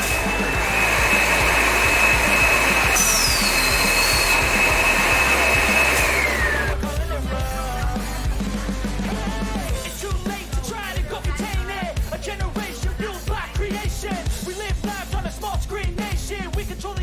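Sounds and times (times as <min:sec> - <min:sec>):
high tone sliding down: 0:00.0 - 0:06.8
rock music: 0:00.0 - 0:17.0.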